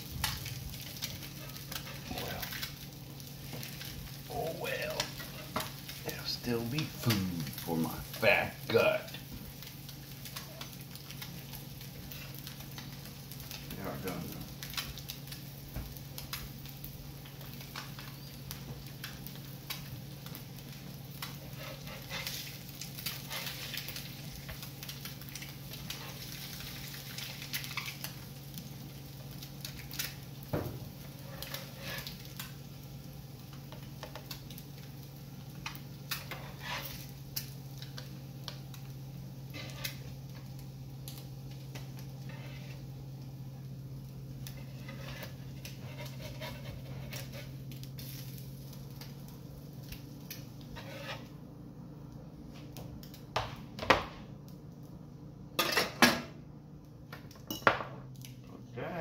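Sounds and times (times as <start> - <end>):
eggs sizzling on griddle: 0.0 - 59.0
spatula scraping and clicking: 35.6 - 37.0, 39.5 - 40.0, 44.4 - 47.7, 50.3 - 51.3.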